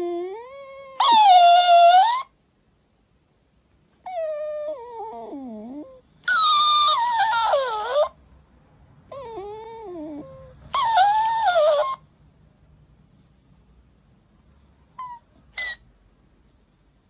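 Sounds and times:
puppy whining: 0:00.0 - 0:02.4, 0:04.0 - 0:08.2, 0:09.1 - 0:12.1, 0:14.8 - 0:15.9.

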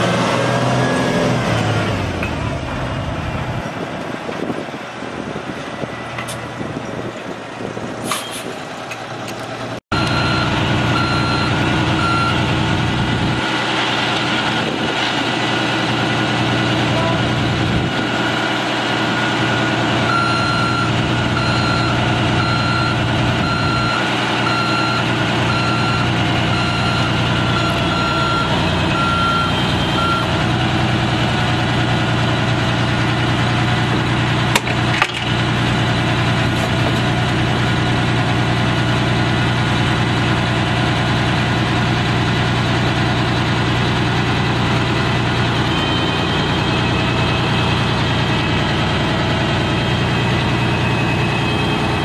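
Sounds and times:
diesel engine running: 0:00.0 - 0:52.0
electronic warning alarm beeping: 0:09.9 - 0:12.5, 0:20.1 - 0:30.4.

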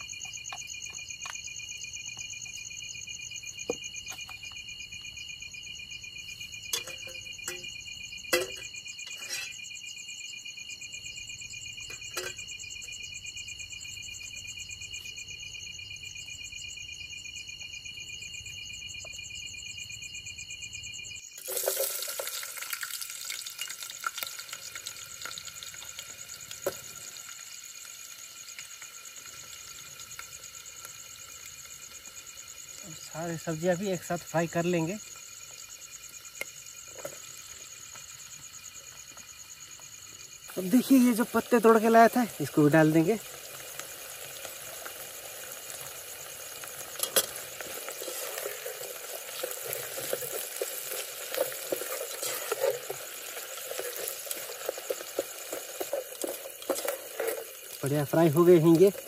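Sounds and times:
insects trilling: 0:00.0 - 0:59.0
food sizzling in hot oil: 0:06.4 - 0:10.0, 0:11.1 - 0:12.8, 0:21.2 - 0:59.0.

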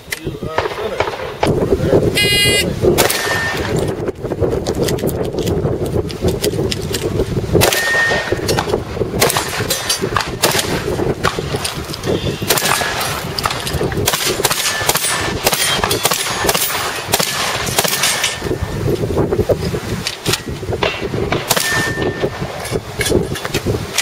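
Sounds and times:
shotgun firing: 0:00.5 - 0:01.6, 0:03.0 - 0:03.9, 0:07.6 - 0:11.7, 0:12.4 - 0:18.5, 0:20.8 - 0:22.6
steel plates clanging: 0:09.6 - 0:10.1, 0:14.6 - 0:18.6.

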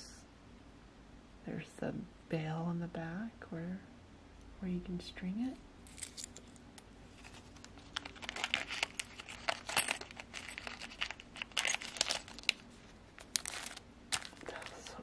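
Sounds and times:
metal charms clinking: 0:05.9 - 0:06.6, 0:07.2 - 0:12.6, 0:13.2 - 0:15.0
plastic bags rustling: 0:07.1 - 0:15.0.

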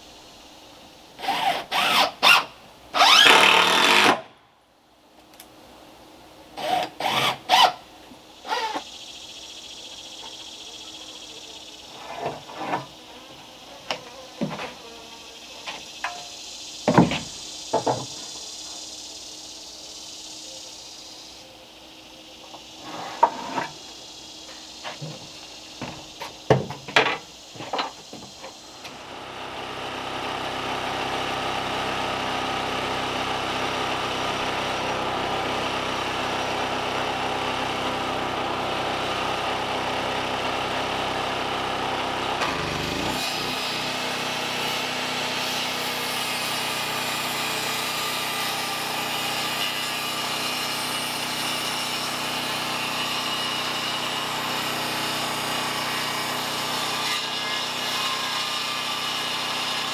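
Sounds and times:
handheld power tool running: 0:01.2 - 0:04.2, 0:06.6 - 0:07.8, 0:28.9 - 0:59.9
knocks of timber and tools: 0:13.8 - 0:14.8, 0:15.6 - 0:18.3, 0:22.5 - 0:23.8, 0:24.8 - 0:28.6.

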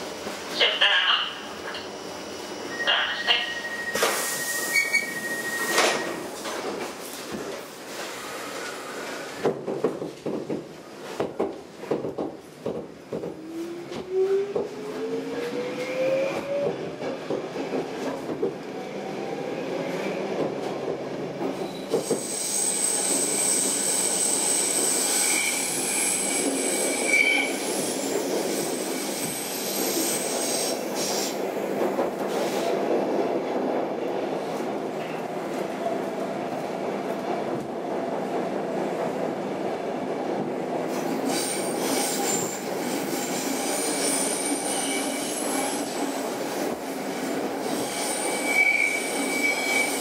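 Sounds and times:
high wheel squeal: 0:02.7 - 0:06.2, 0:21.7 - 0:28.1, 0:47.8 - 0:50.0
subway car knocks and clatter: 0:05.7 - 0:07.8, 0:09.1 - 0:15.6, 0:16.3 - 0:18.8, 0:20.2 - 0:22.3, 0:28.1 - 0:41.3.

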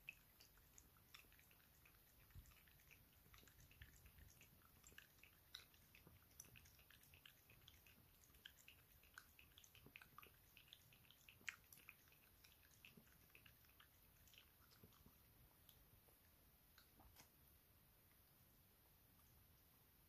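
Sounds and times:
dog lapping milk: 0:00.0 - 0:15.3.

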